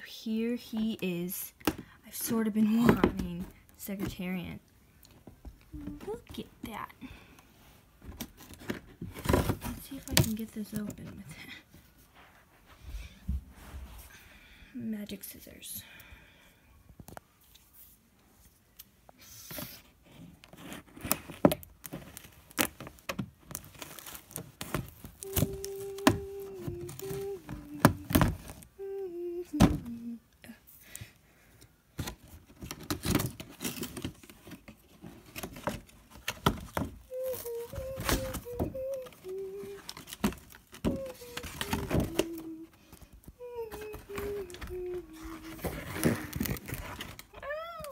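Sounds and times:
person humming: 5.7s - 6.3s, 25.1s - 30.7s, 37.0s - 47.9s
scissors cutting packaging: 23.5s - 28.4s, 36.4s - 42.6s, 43.7s - 47.9s.

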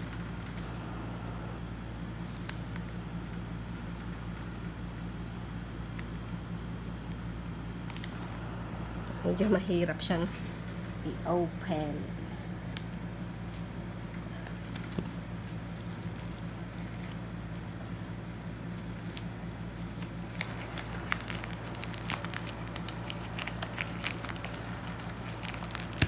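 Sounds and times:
steady low hum: 0.0s - 26.0s
plastic bubble mailer crinkling: 7.7s - 8.5s, 14.4s - 26.0s.

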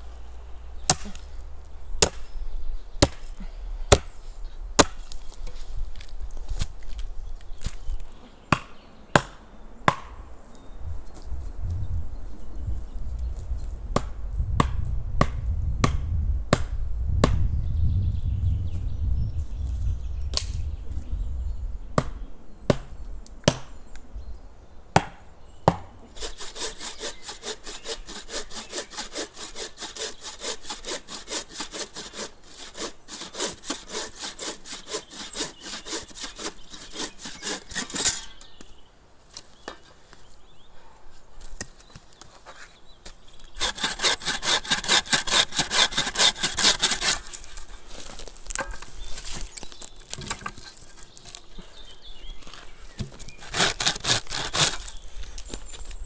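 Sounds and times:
hand saw cutting wood: 26.2s - 38.5s, 43.5s - 47.7s, 53.2s - 55.0s.

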